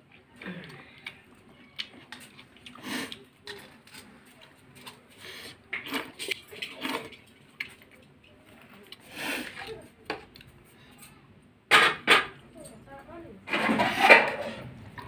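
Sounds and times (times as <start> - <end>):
chewing and mouth sounds: 0.1 - 10.6.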